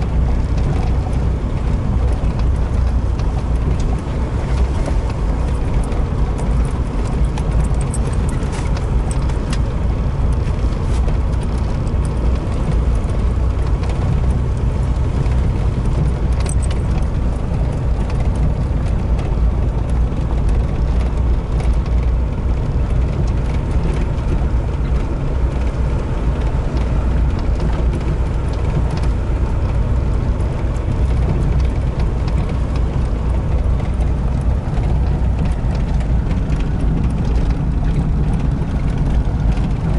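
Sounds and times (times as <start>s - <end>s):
cab rattles and clicks: 0.0s - 39.9s
engine and tyres rumbling: 0.0s - 39.9s.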